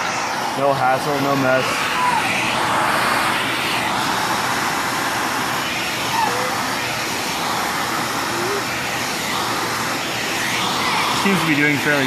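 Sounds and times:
vacuum cleaner running: 0.0s - 12.0s.

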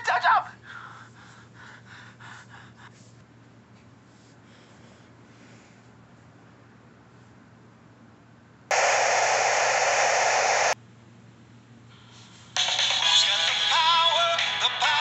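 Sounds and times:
tv static hiss: 8.7s - 10.8s
music with singing from phone: 12.6s - 15.0s.

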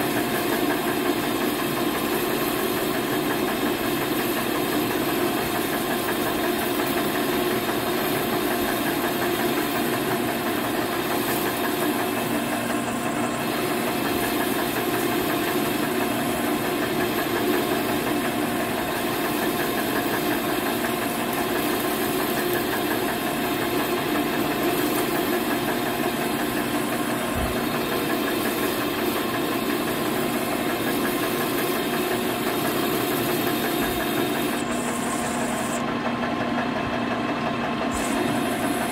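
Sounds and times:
metal lathe humming and whining: 0.0s - 38.9s.

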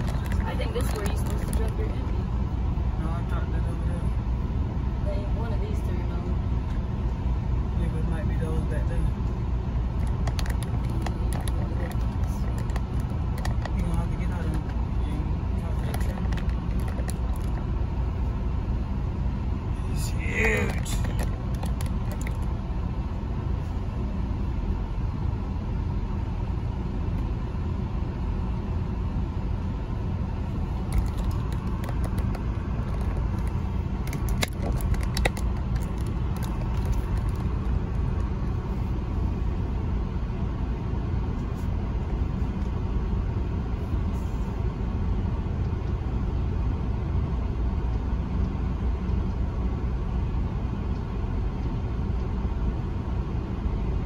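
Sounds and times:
diesel truck engine rumble: 0.0s - 54.0s.

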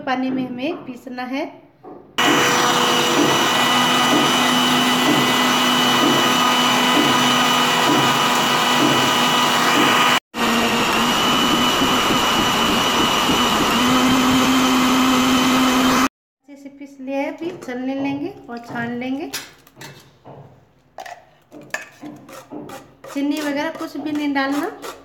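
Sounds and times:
mixer grinder whining: 2.2s - 16.1s.

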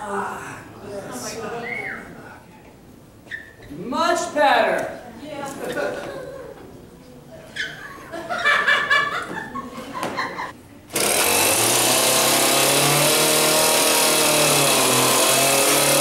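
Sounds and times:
chainsaw running loudly: 10.9s - 16.0s.

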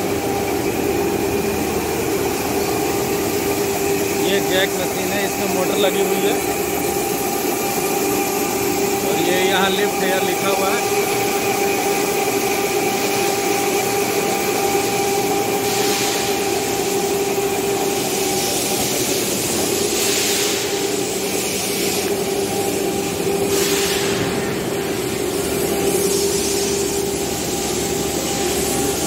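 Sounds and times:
electric motors humming: 0.0s - 29.0s
hiss: 15.6s - 16.8s, 17.9s - 22.1s, 23.5s - 24.5s.

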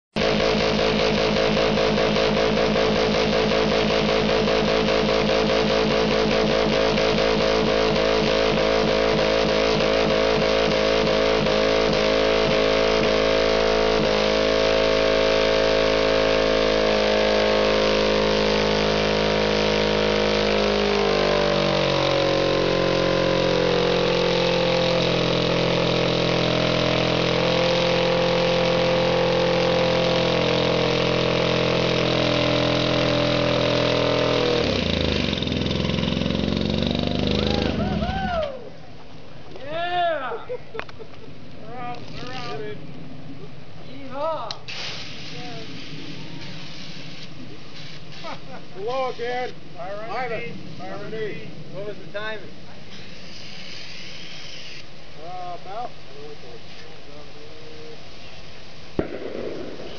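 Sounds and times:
car engine running hard: 0.1s - 38.6s.

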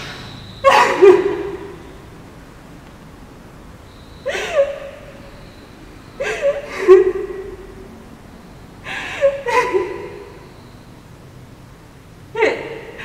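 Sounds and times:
woman sobbing: 0.6s - 1.8s, 4.2s - 5.3s, 6.2s - 7.8s, 8.8s - 10.4s, 12.4s - 13.0s.

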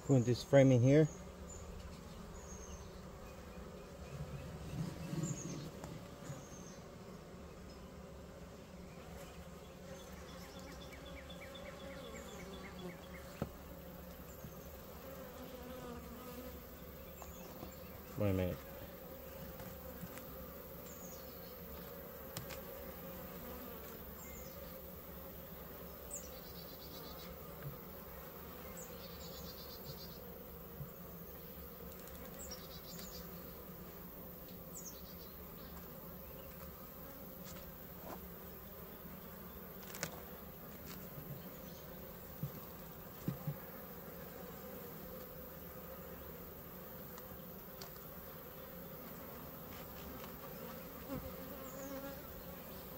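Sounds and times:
bees buzzing: 0.0s - 52.9s.

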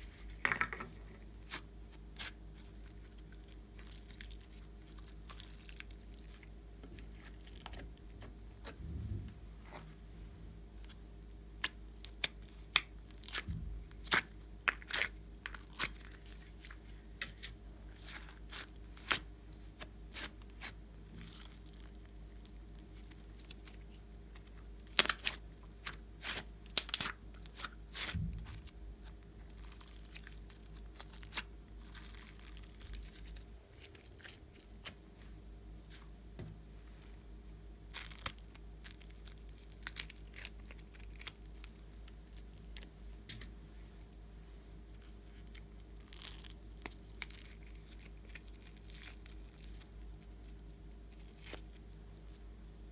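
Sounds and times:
sticky slime crackling and tearing: 1.4s - 8.8s, 10.8s - 35.0s, 37.9s - 42.9s, 44.9s - 52.5s.

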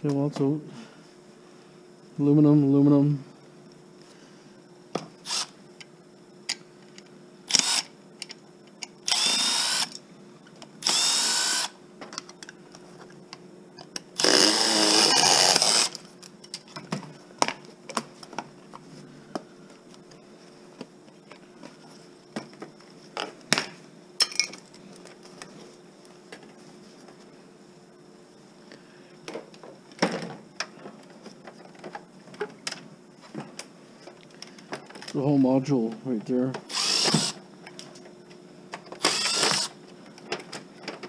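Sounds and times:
power drill whirring: 5.2s - 5.5s, 7.5s - 7.9s, 9.0s - 10.0s, 10.8s - 11.8s, 14.2s - 16.0s, 36.7s - 37.4s, 39.0s - 39.8s.

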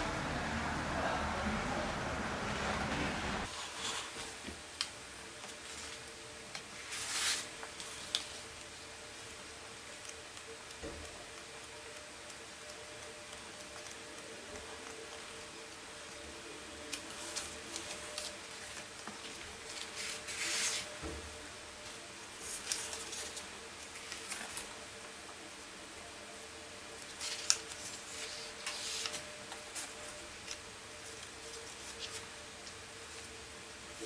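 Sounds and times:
pages turning: 5.4s - 8.5s, 16.9s - 21.0s, 22.4s - 24.8s, 27.0s - 32.8s
paper sheets sliding: 6.8s - 8.3s, 16.9s - 21.0s, 27.2s - 32.3s.

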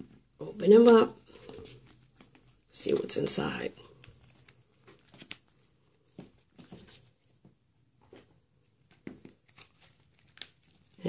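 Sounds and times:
plastic egg clicks and rustles: 0.8s - 5.6s, 8.8s - 11.0s.

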